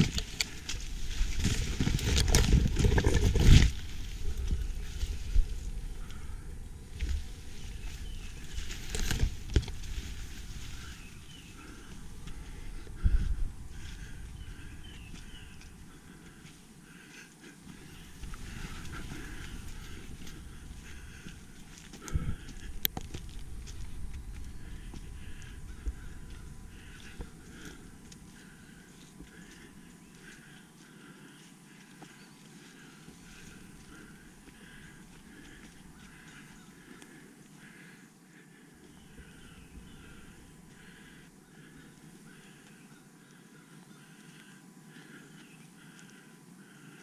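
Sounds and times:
faint high bird calls: 4.2 - 22.8, 23.8 - 47.0
footsteps: 17.6 - 36.4.

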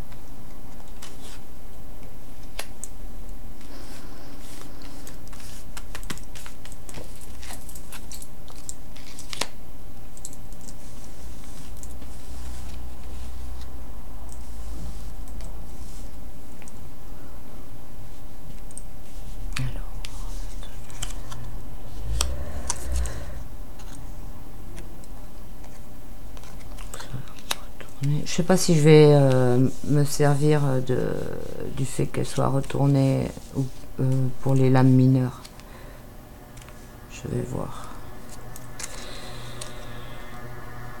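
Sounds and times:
cards clicking and tapping: 5.1 - 9.5
steady low hum: 12.8 - 28.1, 33.0 - 41.0.

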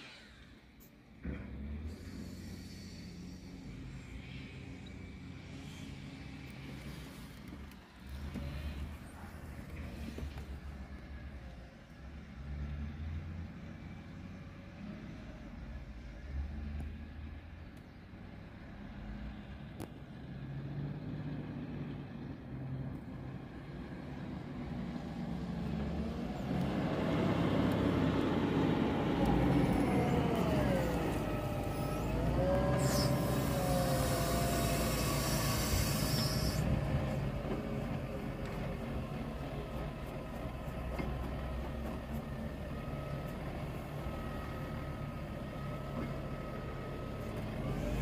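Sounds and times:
diesel loader engine: 0.0 - 48.0
hydraulic whine: 29.2 - 37.3.

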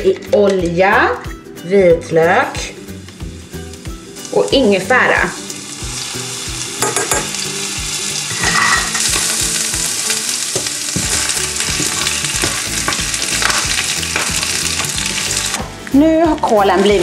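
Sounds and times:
garlic sizzling in hot oil: 2.2 - 17.0
leaves stirred in a pan: 3.4 - 15.6.

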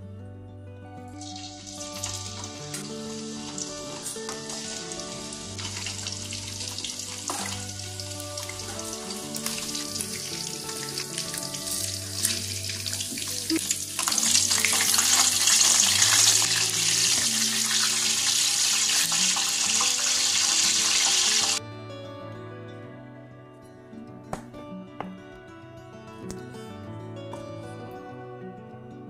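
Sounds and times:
soft background music: 0.0 - 29.0
chicken deep-frying in oil: 1.2 - 21.6.

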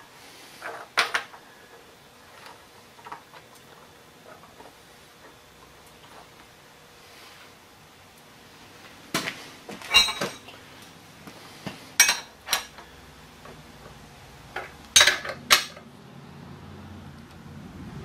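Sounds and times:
metal tools clinking on machine: 9.8 - 10.5.

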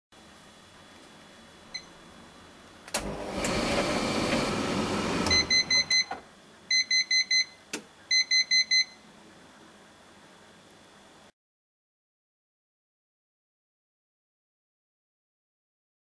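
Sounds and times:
tumble dryer click: 2.9 - 6.2
tumble dryer running: 2.9 - 6.2
high beeps: 5.3 - 6.1.

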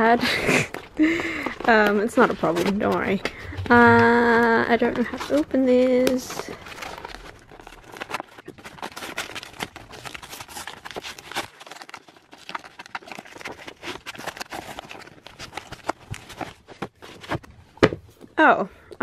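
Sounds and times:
paper crinkling: 0.0 - 17.7
paper tearing and ripping: 6.6 - 16.5.

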